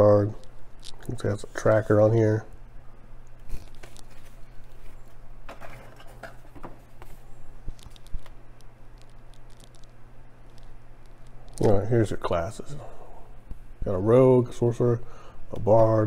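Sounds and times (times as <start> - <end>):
faint low hum: 0.0 - 16.0
cardboard sheets rustling and tapping: 3.5 - 8.4.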